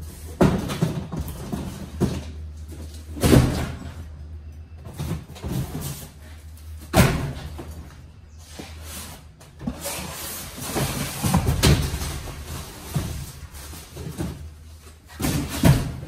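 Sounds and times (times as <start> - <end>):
cardboard boxes thudding onto cart: 0.2 - 4.1, 4.8 - 7.9, 9.5 - 16.0
cardboard boxes scraping: 7.4 - 16.0.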